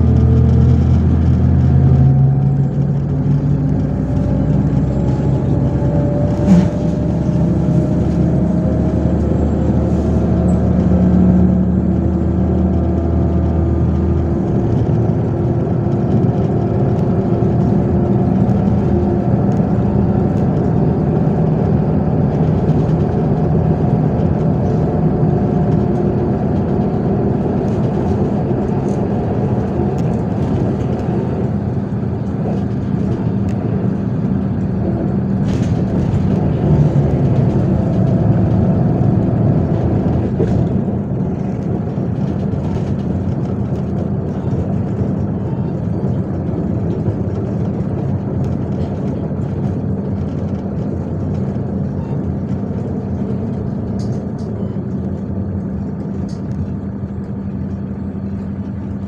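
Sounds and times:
bus engine droning: 0.0 - 59.0
road noise: 0.0 - 59.0.

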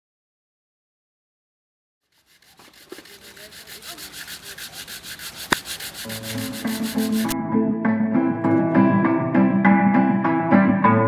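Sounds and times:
sandpaper rubbing on board: 2.0 - 7.4
plucked string music: 5.6 - 11.0.

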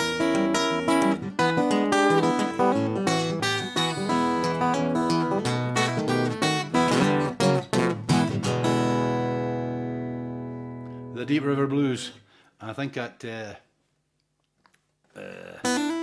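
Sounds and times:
acoustic guitar fingerpicked: 0.0 - 11.1, 15.6 - 16.0.

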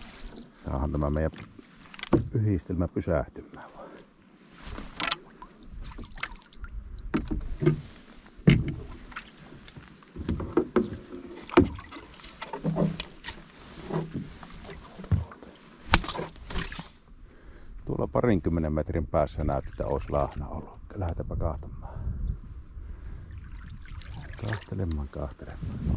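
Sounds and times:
water splashing and sloshing: 0.0 - 2.7, 3.6 - 17.1, 19.4 - 20.8, 23.0 - 25.9
knocks against boat: 7.1 - 8.9.

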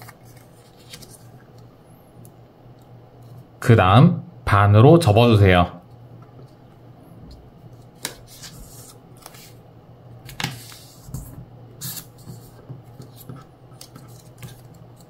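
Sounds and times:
paper rustling and folding: 0.0 - 1.4, 7.8 - 9.6, 10.3 - 15.0
low steady hum: 0.0 - 15.0.

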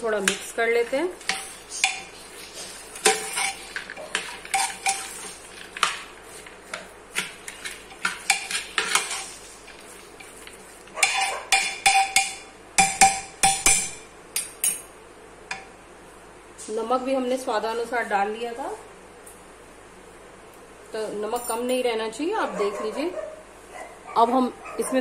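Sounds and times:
spoon clinking in metal pot: 11.0 - 14.9.

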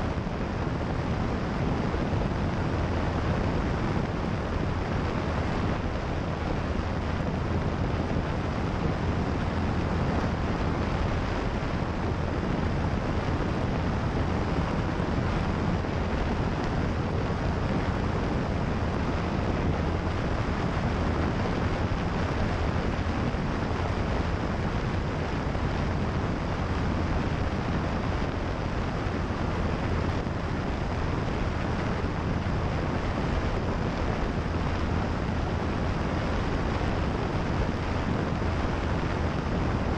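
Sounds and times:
propeller aircraft engine: 0.0 - 39.9
wind rush on microphone: 0.0 - 39.9.

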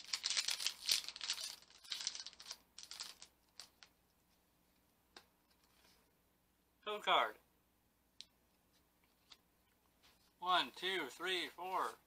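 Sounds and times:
foil wrapper crinkling and tearing: 0.0 - 3.9.

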